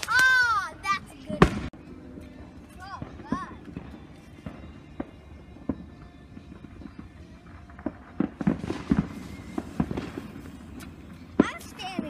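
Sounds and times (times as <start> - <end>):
sharp firework pops: 0.0 - 0.5, 1.3 - 1.8, 7.6 - 12.0
ground firework sputtering: 0.0 - 12.0.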